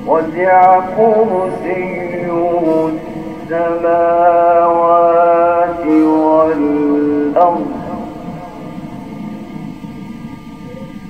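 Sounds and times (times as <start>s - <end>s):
man chanting melodically: 0.0s - 9.4s.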